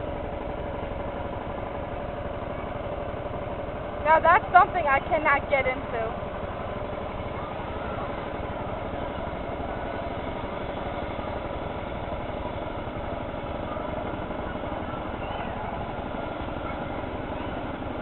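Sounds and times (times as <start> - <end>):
motor boat engine running: 0.0 - 18.0.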